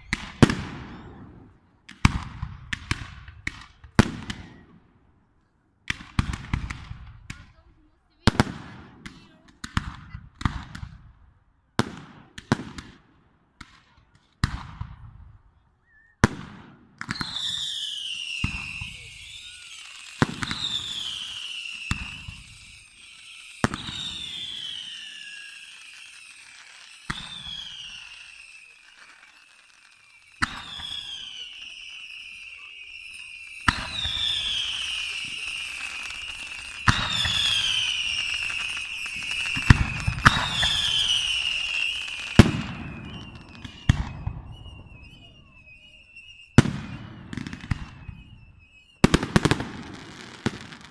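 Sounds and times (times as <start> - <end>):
firework whistles gliding down: 0.0 - 1.6, 17.0 - 50.9
firework bangs: 0.0 - 4.8, 5.9 - 7.6, 16.2 - 50.9.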